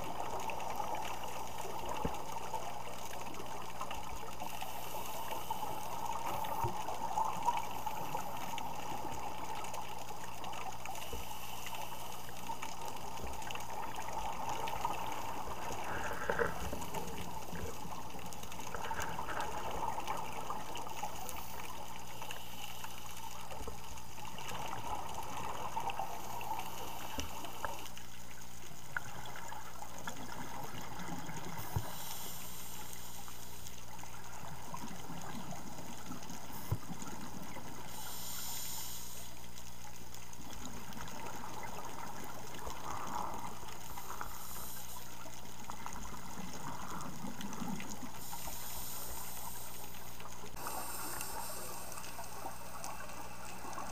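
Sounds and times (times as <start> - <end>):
steady water hiss: 0.0 - 53.9
underwater bubbles gurgling: 0.0 - 53.9.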